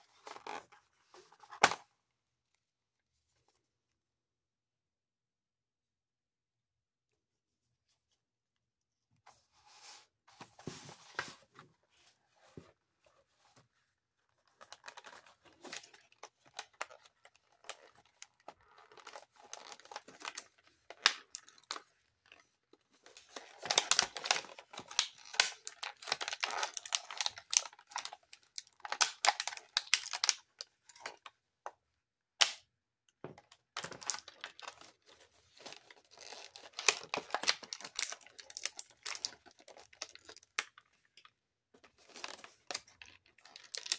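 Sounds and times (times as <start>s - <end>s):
plastic packaging crinkling: 23.3s - 31.0s, 33.8s - 40.9s, 42.0s - 43.9s.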